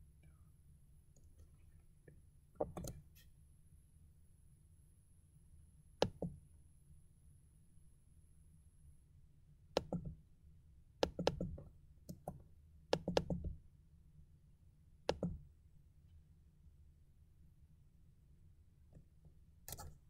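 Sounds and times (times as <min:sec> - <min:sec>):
computer clicks and knocks: 0:02.6 - 0:03.0.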